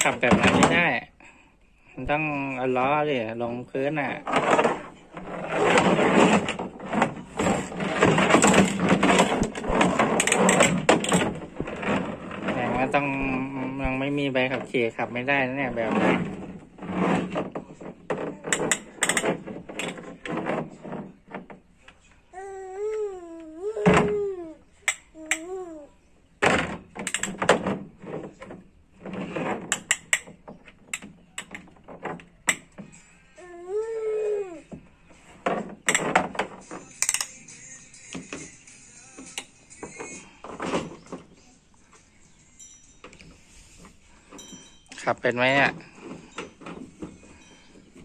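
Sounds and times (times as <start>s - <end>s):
plastic toy clattering and scraping: 0.0s - 1.0s, 2.4s - 22.1s, 26.4s - 33.2s, 34.8s - 37.4s, 38.0s - 42.0s, 43.1s - 48.0s.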